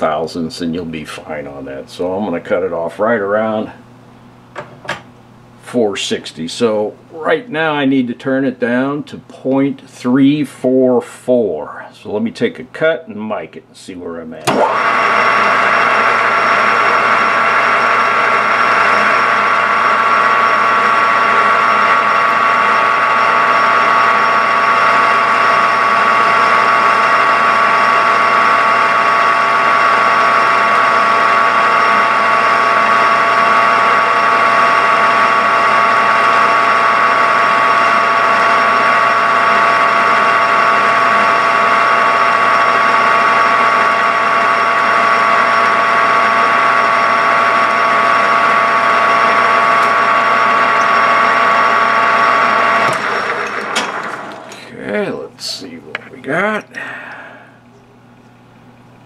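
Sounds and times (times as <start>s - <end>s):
metal lathe whining: 14.5s - 56.0s.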